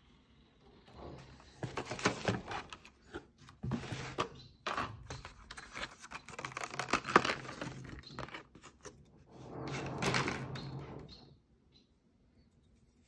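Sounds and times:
plastic packaging crinkling: 4.7 - 8.9.

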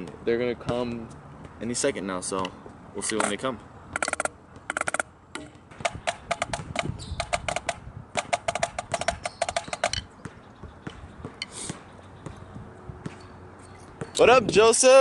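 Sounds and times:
drumsticks on practice pad: 2.4 - 14.2.

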